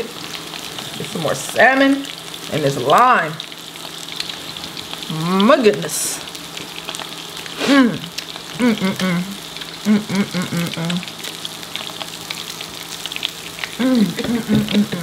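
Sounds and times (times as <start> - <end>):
grill sizzling and crackling: 0.0 - 15.0
wordless eating voice sounds: 7.6 - 11.1, 13.7 - 15.0.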